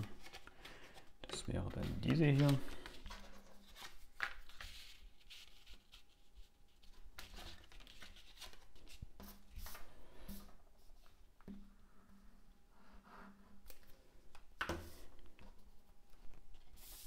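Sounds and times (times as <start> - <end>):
paper rustling: 0.0 - 9.9.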